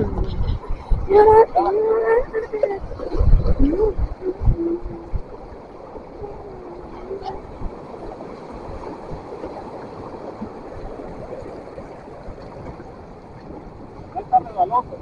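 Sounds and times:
sea washing against shore: 0:00.0 - 0:15.0.

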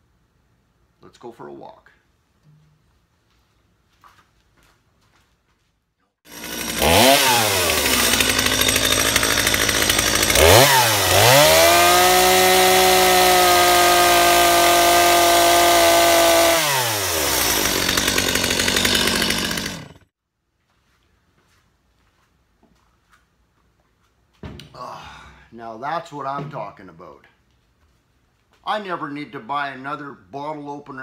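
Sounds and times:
chainsaw revving: 0:06.3 - 0:20.1.

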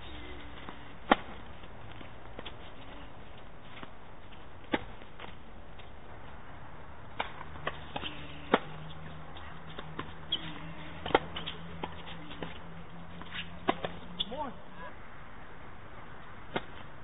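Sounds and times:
racket striking tennis ball: 0:00.6 - 0:01.5, 0:07.1 - 0:08.9, 0:11.0 - 0:12.6, 0:13.2 - 0:14.3, 0:16.5 - 0:16.9
ball bouncing: 0:07.1 - 0:14.3.

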